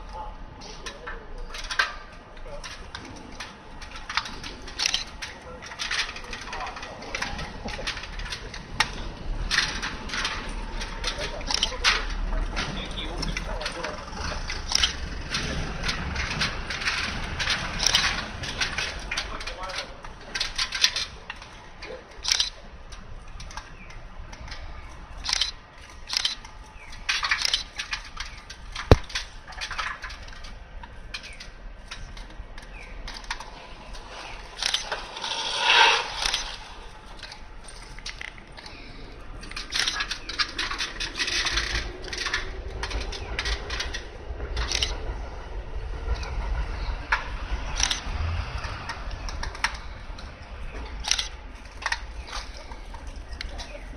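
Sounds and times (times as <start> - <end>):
low rumble: 32.4 - 38.3
rasping scrape: 33.2 - 38.8.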